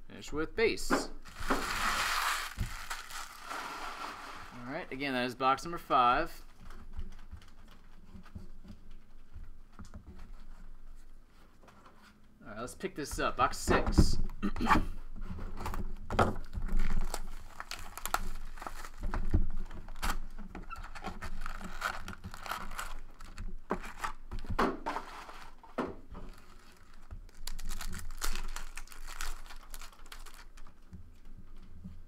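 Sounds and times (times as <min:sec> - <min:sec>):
foil wrappers tearing and crinkling: 0:01.2 - 0:04.6, 0:16.4 - 0:19.1, 0:19.8 - 0:24.2, 0:26.2 - 0:30.8.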